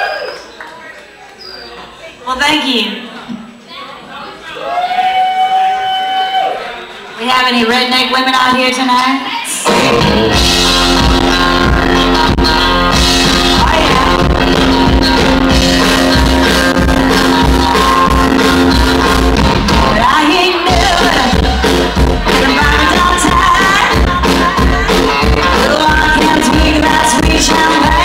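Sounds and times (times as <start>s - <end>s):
rock band playing loud: 9.6s - 28.0s
woman singing: 9.6s - 28.0s.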